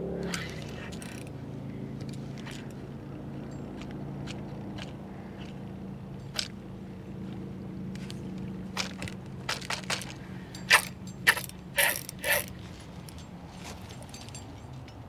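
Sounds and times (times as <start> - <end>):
boat motor running: 0.0 - 13.2
sharp clicks and ticks: 7.9 - 13.3.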